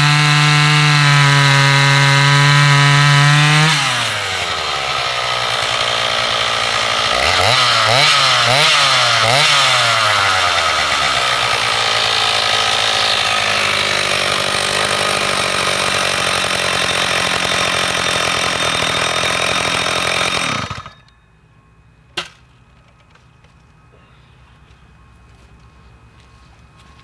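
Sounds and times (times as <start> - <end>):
chainsaw running: 0.0 - 21.1.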